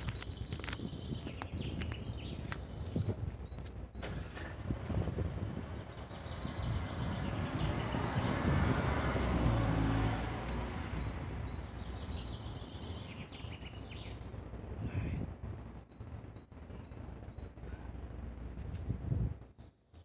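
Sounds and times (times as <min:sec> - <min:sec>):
birds chirping faintly: 0:00.0 - 0:04.4, 0:05.7 - 0:18.1
car passing: 0:04.0 - 0:13.3.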